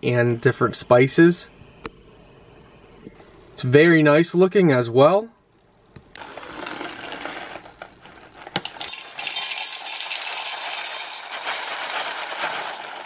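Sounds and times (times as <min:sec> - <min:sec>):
coffee beans clattering into metal bowl: 0:06.2 - 0:13.0.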